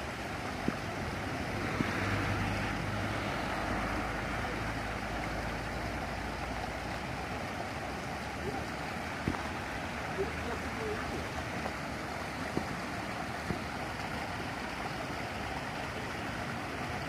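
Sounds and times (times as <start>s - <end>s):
water spilling over rocks: 0.0s - 17.0s.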